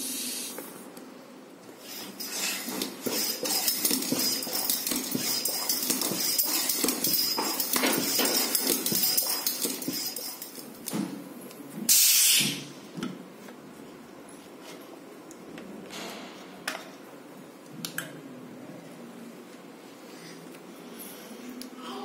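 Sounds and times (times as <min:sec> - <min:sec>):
loud hiss of air: 0:00.0 - 0:00.7, 0:11.9 - 0:12.7
bicycle air pump strokes: 0:01.8 - 0:10.6.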